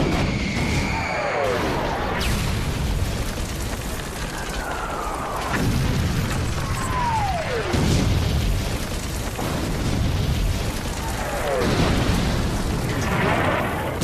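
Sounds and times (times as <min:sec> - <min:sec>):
cannonballs whistling in: 0:00.0 - 0:02.6, 0:04.3 - 0:07.9
low battle rumble: 0:00.0 - 0:14.0
heavy boom: 0:05.4 - 0:14.0.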